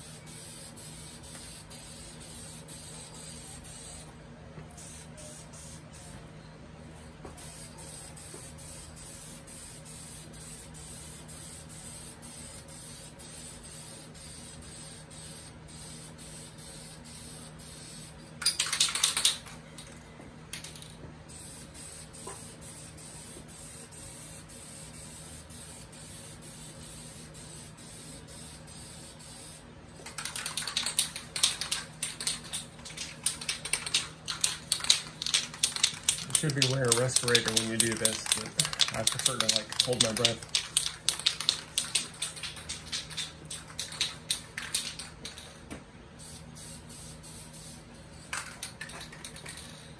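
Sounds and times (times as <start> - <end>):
aerosol spray can hissing: 0.0 - 4.1, 46.2 - 47.8
loud rattling clicks: 30.1 - 45.4.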